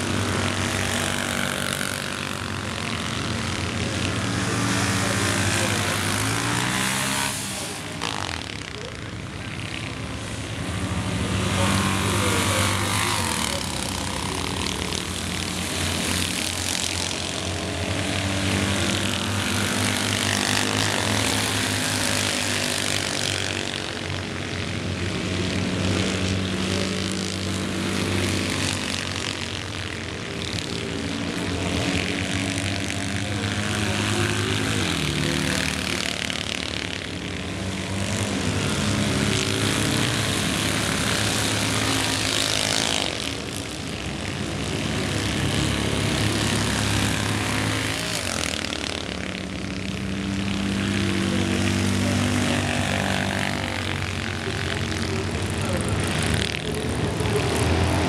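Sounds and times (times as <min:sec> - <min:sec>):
racing car engines buzzing: 0:00.0 - 0:58.0.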